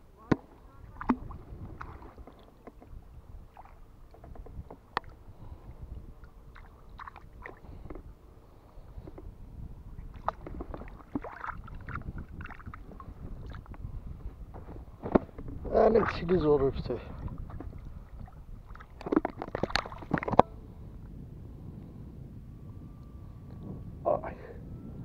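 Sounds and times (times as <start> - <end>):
water lapping and gurgling: 0.3 - 9.2, 9.8 - 14.4, 15.3 - 21.1
steady low rumble: 4.9 - 19.1, 19.7 - 25.0
fishing tackle knocks and clicks: 19.0 - 20.5.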